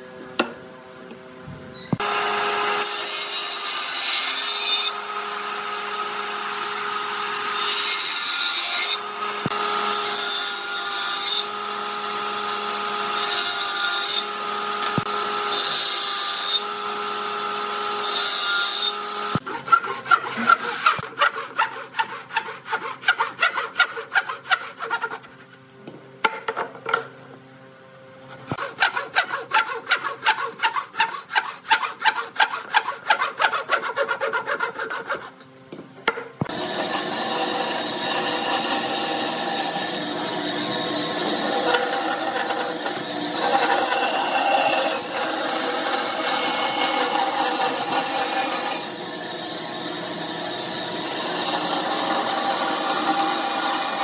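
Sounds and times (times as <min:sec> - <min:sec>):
table saw cutting board: 0:01.9 - 0:25.6, 0:28.3 - 0:35.4, 0:36.1 - 0:54.0
hand saw cutting board: 0:12.8 - 0:25.6, 0:28.3 - 0:35.5, 0:36.1 - 0:49.1.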